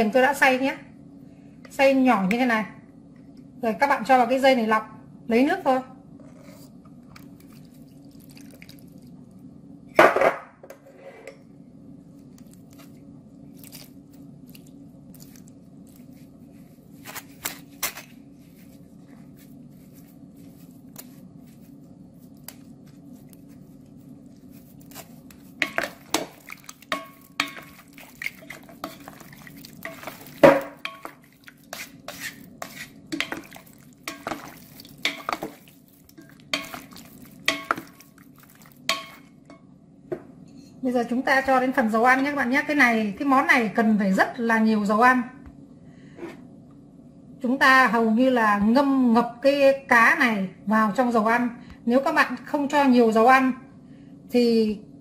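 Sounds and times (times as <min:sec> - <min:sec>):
steady low hum: 0:00.0 - 0:55.0
wooden spatulas knocking glass bowl: 0:37.5 - 0:38.0.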